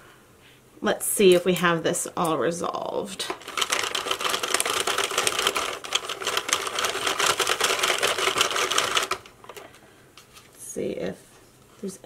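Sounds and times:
knitting machine clattering: 3.3s - 9.6s.

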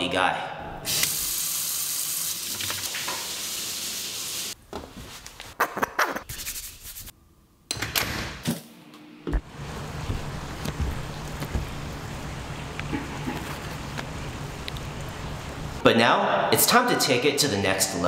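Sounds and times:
tap water running into sink: 2.0s - 3.9s
cloth rubbing: 9.5s - 14.2s.

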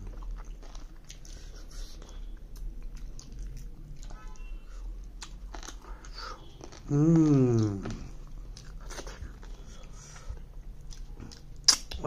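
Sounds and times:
low steady hum: 0.0s - 12.0s
mouth eating sounds: 5.2s - 10.0s, 10.8s - 12.0s.

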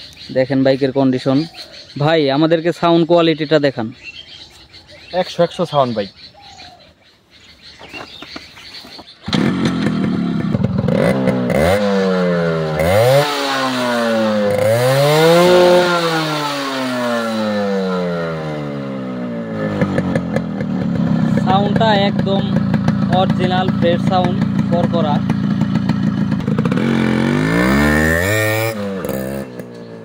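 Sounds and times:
motorcycle engine revving: 9.2s - 30.0s.

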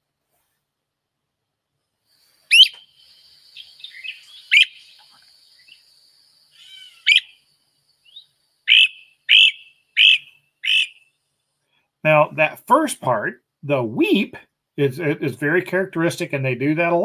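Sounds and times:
bird rising weep calls: 2.4s - 5.9s, 6.5s - 7.4s, 8.1s - 11.0s
bird rattling call: 2.5s - 2.8s, 3.6s - 5.7s, 6.6s - 7.4s, 8.1s - 11.0s.

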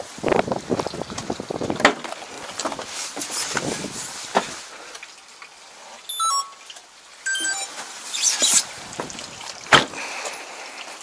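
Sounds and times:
electronic beeps: 6.1s - 6.7s, 7.3s - 7.7s.

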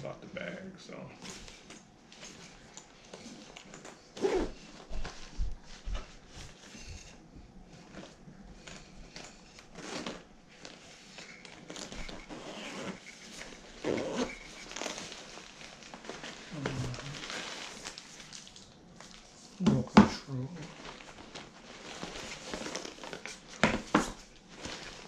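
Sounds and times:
bag and packaging rustling: 1.2s - 25.0s.

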